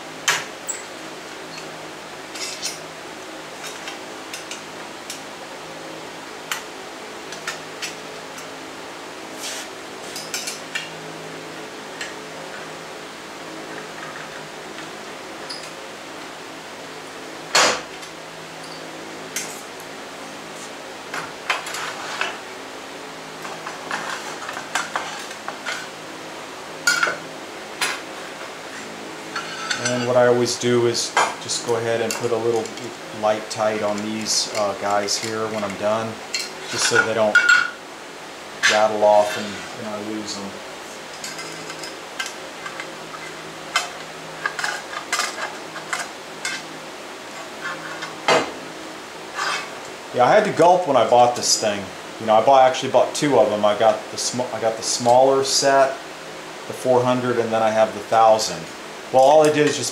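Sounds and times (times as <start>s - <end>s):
faint steady hum: 0.0s - 59.9s
metal rails clinking and sliding: 36.4s - 37.7s, 41.1s - 46.7s.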